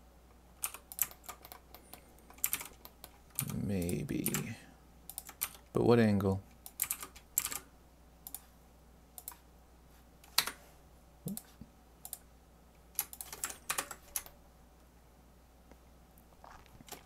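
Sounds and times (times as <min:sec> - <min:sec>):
computer keyboard keystrokes: 0:00.6 - 0:04.5, 0:05.1 - 0:05.6, 0:06.7 - 0:07.6, 0:13.0 - 0:14.3.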